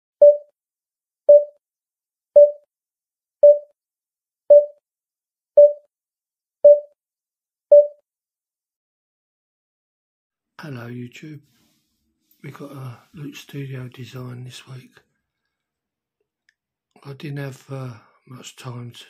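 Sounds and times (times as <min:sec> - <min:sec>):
short electronic beeps: 0:00.2 - 0:00.5, 0:01.3 - 0:01.5, 0:02.4 - 0:02.6, 0:03.4 - 0:03.7, 0:04.5 - 0:04.8, 0:05.6 - 0:05.8, 0:06.7 - 0:06.9, 0:07.7 - 0:08.0.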